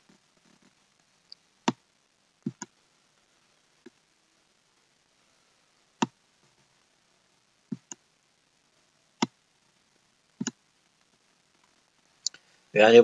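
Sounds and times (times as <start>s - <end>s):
computer mouse clicks: 7.7s - 8.0s.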